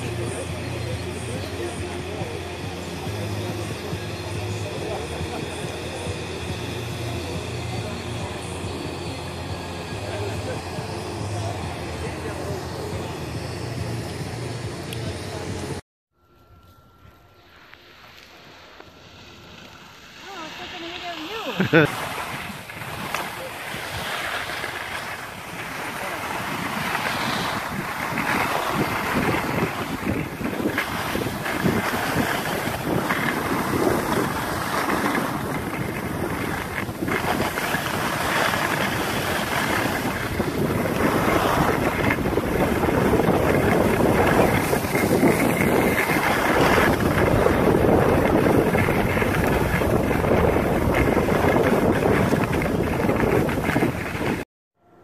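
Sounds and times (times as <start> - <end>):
skis sliding on snow: 0.0 - 14.0, 16.6 - 54.4
wind rushing over microphone: 20.2 - 54.4.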